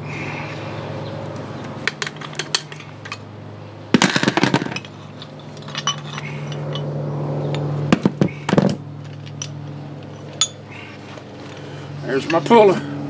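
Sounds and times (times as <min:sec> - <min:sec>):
steady low hum: 0:00.0 - 0:13.0
steel tools clinking: 0:01.8 - 0:03.3, 0:04.1 - 0:06.9, 0:09.0 - 0:10.8.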